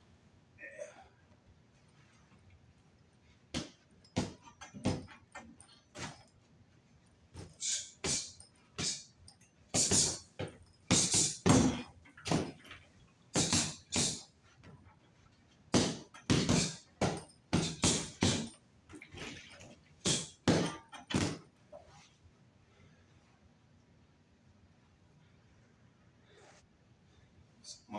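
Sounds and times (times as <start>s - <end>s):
fists punching a punching bag: 3.5s - 5.2s, 9.8s - 12.6s, 13.3s - 14.2s, 15.7s - 18.5s, 20.0s - 21.5s.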